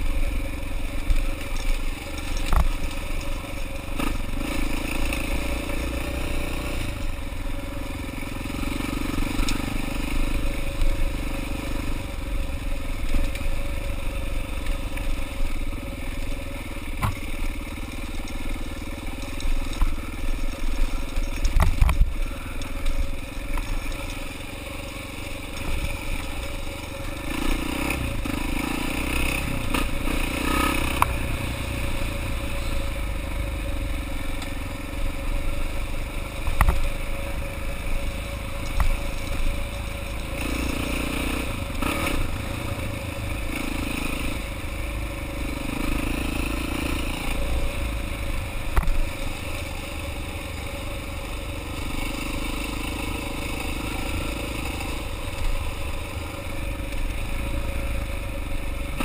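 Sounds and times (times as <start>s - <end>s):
dirt bike engine: 0.0s - 59.0s
bike knocks and clatter: 17.0s - 17.3s.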